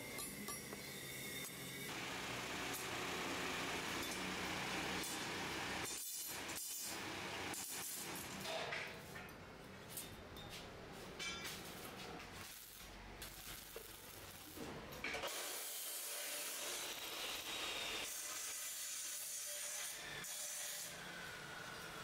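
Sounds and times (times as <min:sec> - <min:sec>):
welding arc hissing: 0:12.4 - 0:20.6.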